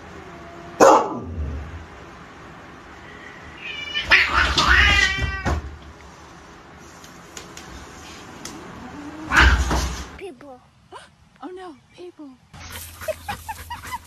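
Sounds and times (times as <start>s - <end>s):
cats screeching and hissing: 3.0s - 5.7s, 8.8s - 10.2s
cat yowling: 3.6s - 5.6s, 9.1s - 9.8s.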